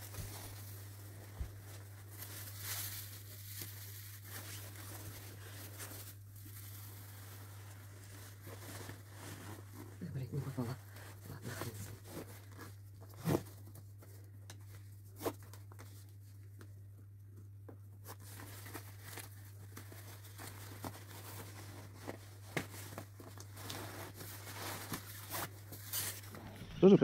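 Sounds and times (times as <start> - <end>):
clothing rustling: 0.0 - 14.1, 18.0 - 27.0.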